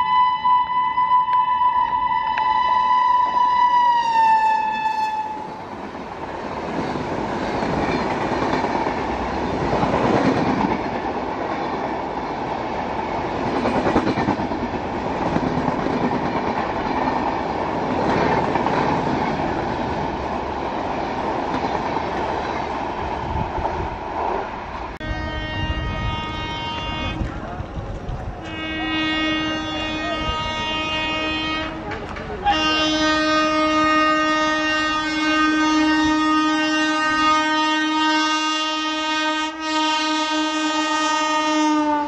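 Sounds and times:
locomotive horn: 0.0s - 5.6s, 25.0s - 27.3s, 28.4s - 42.0s.

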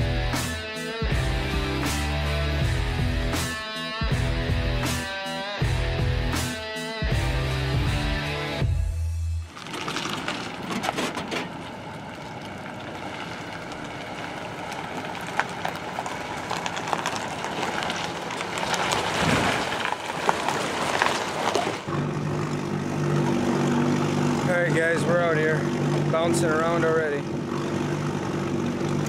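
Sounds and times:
outboard motor running: 21.2s - 29.0s.

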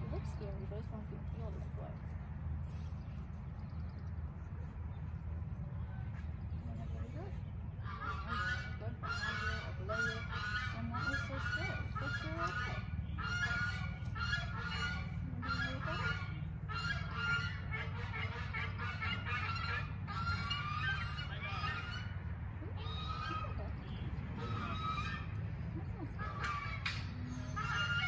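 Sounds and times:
steady low rumble: 0.0s - 28.0s
birds honking: 6.9s - 28.0s.

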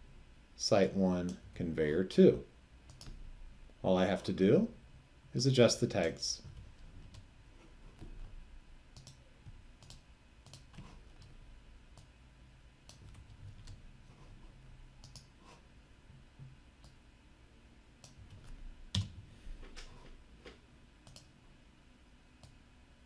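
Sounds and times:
computer mouse clicking: 2.9s - 3.2s, 8.9s - 12.1s, 12.8s - 13.8s, 15.0s - 15.4s, 16.8s - 17.0s, 18.0s - 21.3s
keyboard typing: 8.9s - 9.2s, 9.8s - 12.1s, 12.9s - 13.8s, 15.0s - 15.3s.

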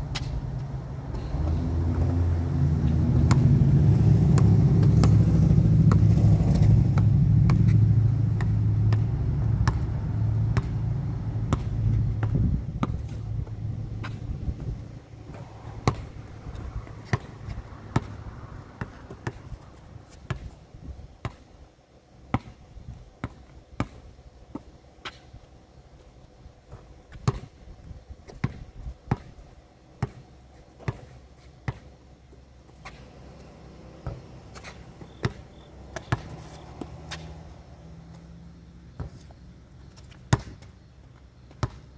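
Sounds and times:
vehicle engine rumble: 0.0s - 21.1s, 32.1s - 41.9s.

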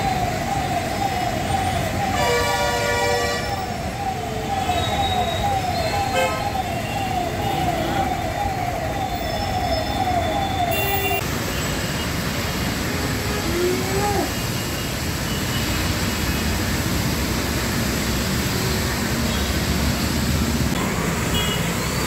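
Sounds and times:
emergency siren wailing: 0.0s - 11.3s, 12.9s - 14.5s
road traffic rumble: 0.0s - 22.0s.

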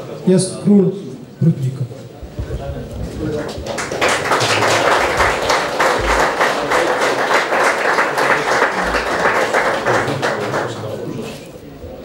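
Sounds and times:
audience applauding: 2.2s - 11.3s.

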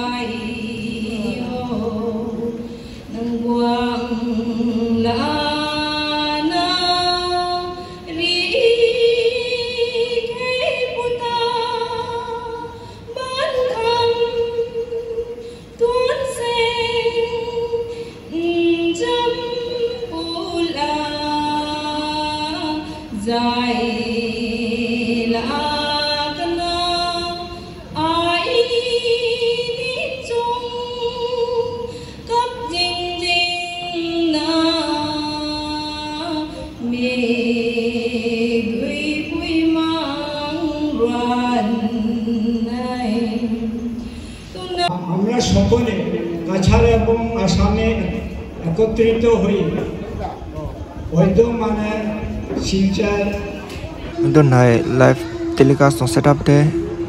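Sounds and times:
women singing slow song: 0.0s - 44.9s.

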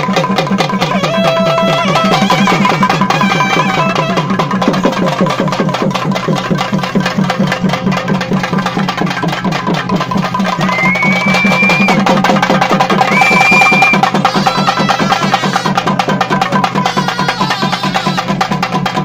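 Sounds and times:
fast drumming on barrel drums: 0.0s - 19.0s
wind instrument melody: 0.6s - 5.7s, 13.1s - 16.0s, 16.8s - 18.5s.

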